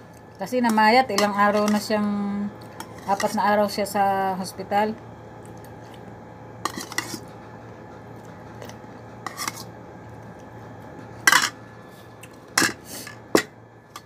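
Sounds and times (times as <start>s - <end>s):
faint steady hum: 0.0s - 14.0s
spoon scraping a bowl: 6.7s - 7.3s, 8.6s - 9.7s.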